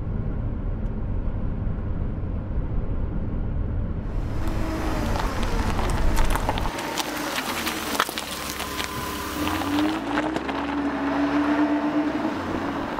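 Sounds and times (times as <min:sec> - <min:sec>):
diesel engine rumble: 0:00.0 - 0:12.9
tyres on wet road: 0:04.1 - 0:12.9.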